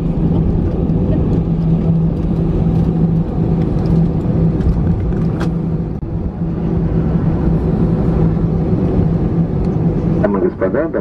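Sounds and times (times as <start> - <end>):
jet engines idling: 0.0 - 11.0.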